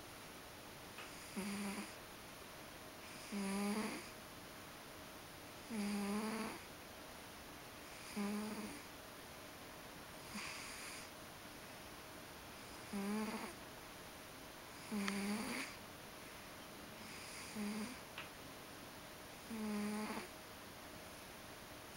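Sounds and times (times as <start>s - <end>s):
cat snoring: 1.1s - 2.0s, 3.1s - 4.1s, 5.6s - 6.6s, 7.9s - 8.9s, 10.2s - 11.1s, 12.6s - 13.6s, 14.8s - 15.8s, 17.0s - 18.0s, 19.4s - 20.3s.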